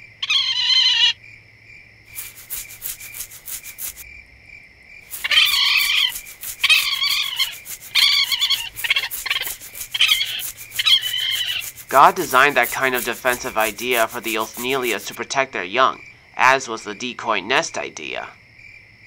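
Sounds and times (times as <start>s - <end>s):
cricket-like chirp: 0.0s - 19.0s
cartoon animal squeals: 0.2s - 1.2s, 5.1s - 15.2s
rustling through leaves: 2.1s - 4.0s, 5.0s - 15.2s.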